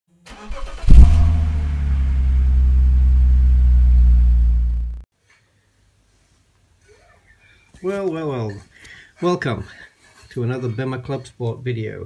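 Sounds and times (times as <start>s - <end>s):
car engine starting: 0.3s - 5.0s.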